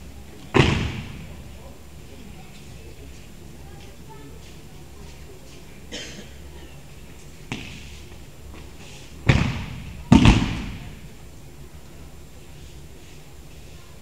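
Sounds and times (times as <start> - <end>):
breakfall slaps: 0.5 - 1.4, 9.2 - 10.9
heavy thuds on mats: 0.5 - 1.4, 9.2 - 10.9.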